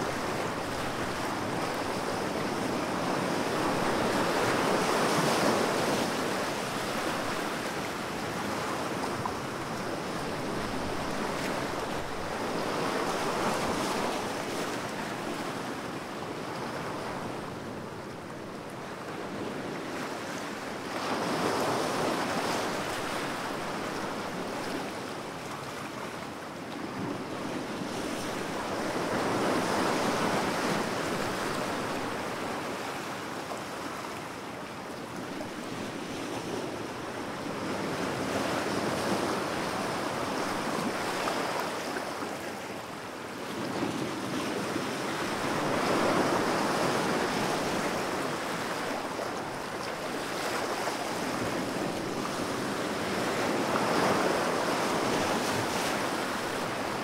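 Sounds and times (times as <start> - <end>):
ocean waves surging: 44.5 - 57.0.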